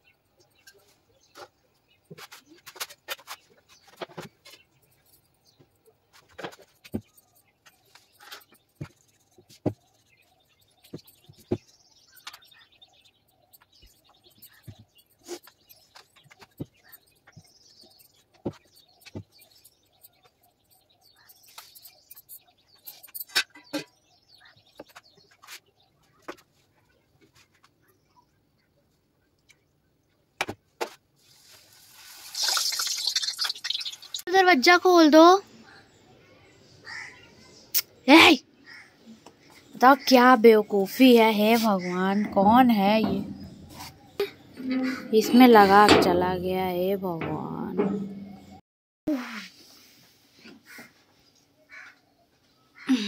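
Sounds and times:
faint high chirping: 0.0s - 29.7s.

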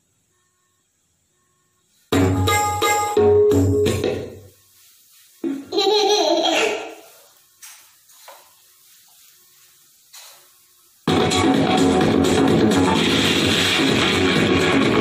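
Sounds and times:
keyboard rhythm loop: 2.1s - 4.5s, 11.1s - 15.0s
laugh-like voice sound: 5.7s - 7.0s.

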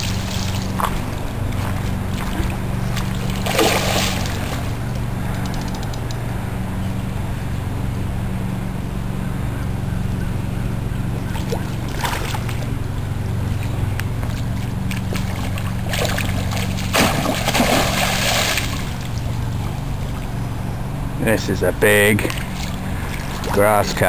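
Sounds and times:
fish splashing in water: 0.0s - 5.6s, 11.2s - 20.5s, 22.2s - 24.0s
steady low hum: 0.0s - 24.0s.

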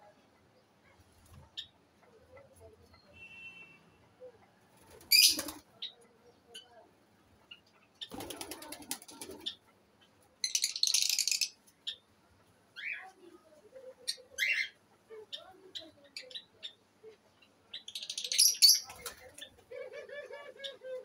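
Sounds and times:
dove wings flapping: 8.1s - 9.4s
high parrot chirps: 10.4s - 12.0s
soft low dove coos: 19.5s - 21.0s.

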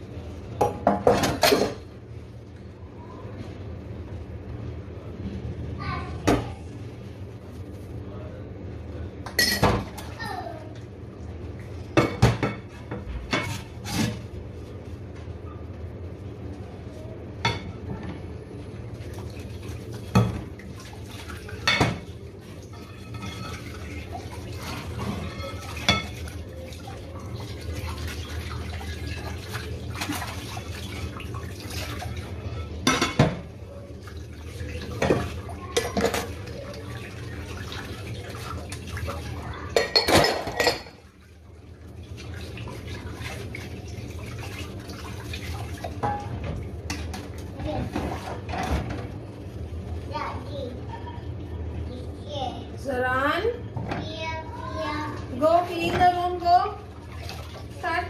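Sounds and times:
plates clinking and clattering: 0.6s - 1.8s, 22.7s - 23.9s, 34.9s - 36.4s, 39.7s - 41.0s
tap water running: 18.6s - 50.5s, 54.0s - 58.0s.

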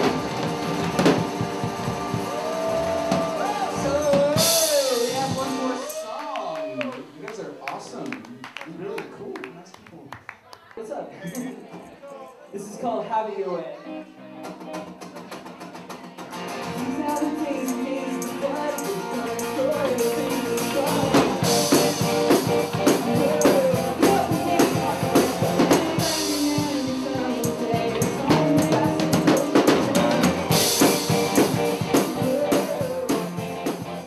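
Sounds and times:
drum kit: 0.0s - 6.5s, 14.4s - 34.0s
band playing: 0.0s - 8.0s, 12.6s - 34.0s
guitar: 0.0s - 8.0s, 11.1s - 34.0s
person singing: 2.3s - 6.0s, 15.4s - 34.0s.

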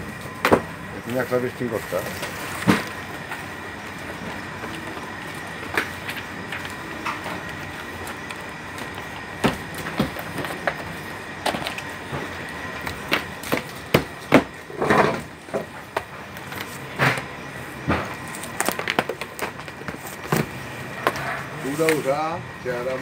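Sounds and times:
boxes knocking and tapping: 8.8s - 11.8s.

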